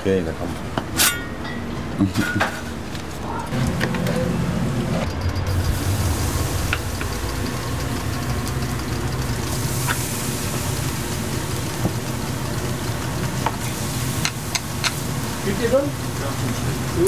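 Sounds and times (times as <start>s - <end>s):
low mechanical hum: 0.0s - 17.0s
batter sizzling on a griddle: 5.9s - 17.0s.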